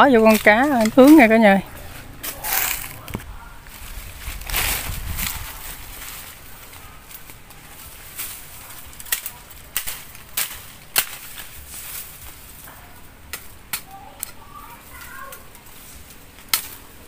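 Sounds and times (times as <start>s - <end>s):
machete chopping bamboo: 9.0s - 12.1s, 16.4s - 16.8s.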